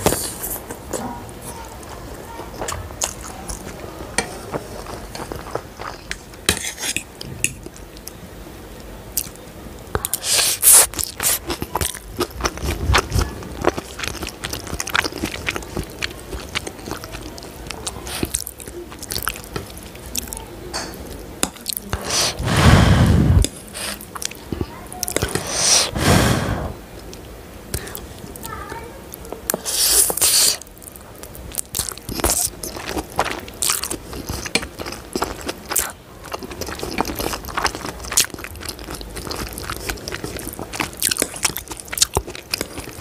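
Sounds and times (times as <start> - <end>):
person chewing noodles: 10.0 - 20.3, 29.5 - 43.0
person slurping: 22.0 - 24.0, 25.3 - 26.8.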